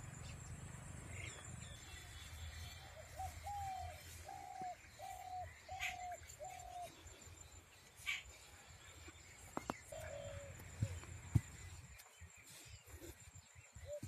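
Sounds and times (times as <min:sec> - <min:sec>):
outdoor background noise: 0:00.0 - 0:14.0
bird hooting: 0:03.1 - 0:07.0.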